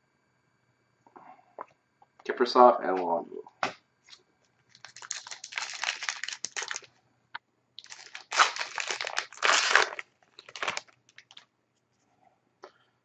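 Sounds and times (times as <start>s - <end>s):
wrapper tearing and crinkling: 4.7s - 6.9s, 7.8s - 11.4s.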